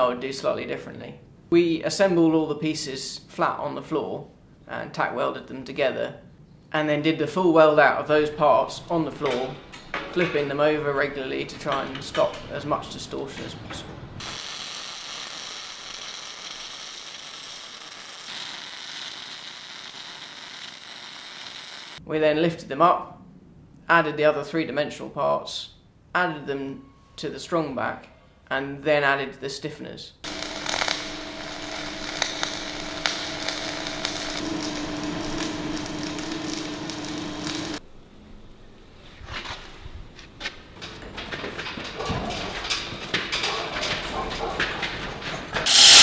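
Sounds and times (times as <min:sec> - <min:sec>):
welding arc crackling: 0:14.2 - 0:22.0, 0:30.2 - 0:37.8, 0:45.6 - 0:46.0
wire-feed motor hum: 0:30.3 - 0:37.8.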